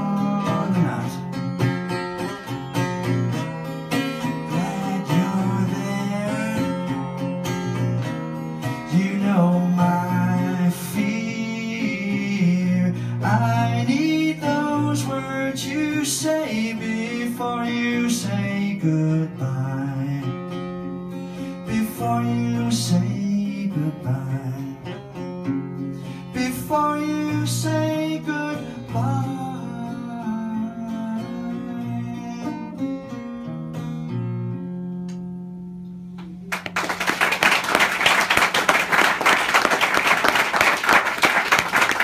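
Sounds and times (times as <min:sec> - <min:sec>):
acoustic guitar playing: 0:00.0 - 0:42.0
audience applause: 0:36.5 - 0:42.0.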